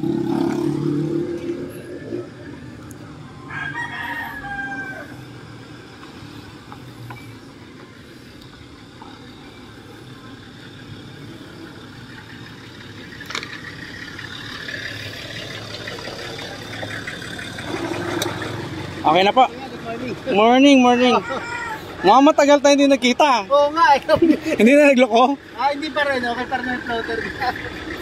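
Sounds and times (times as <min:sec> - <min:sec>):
vehicle engine running: 0:00.0 - 0:28.0
rooster crowing: 0:03.2 - 0:05.3, 0:20.8 - 0:22.2.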